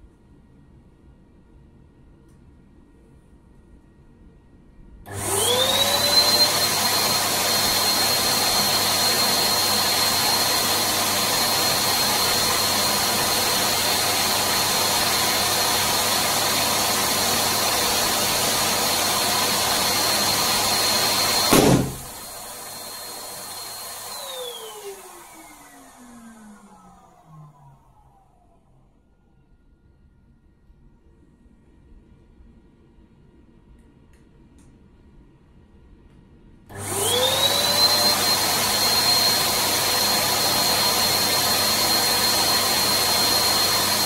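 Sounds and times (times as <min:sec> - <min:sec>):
electric balloon pump whining: 0:05.1 - 0:28.0, 0:36.7 - 0:44.0
balloon popping: 0:21.5 - 0:22.2.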